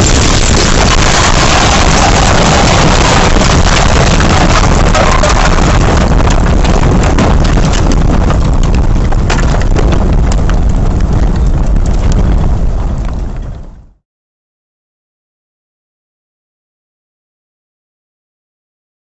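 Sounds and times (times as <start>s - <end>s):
debris knocking and clattering: 0.0s - 12.2s
strong wind on microphone: 0.0s - 14.0s.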